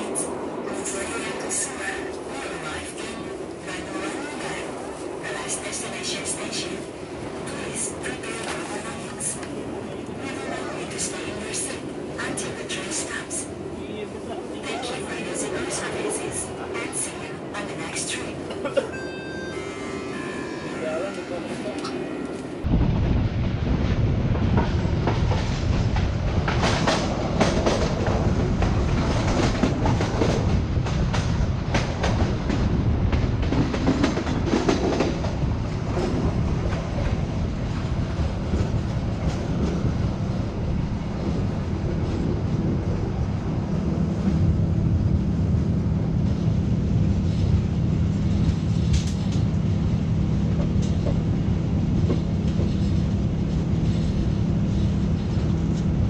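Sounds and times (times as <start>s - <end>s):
train rumble with low hum: 0.0s - 56.0s
train wheels clacking on track: 24.5s - 37.1s.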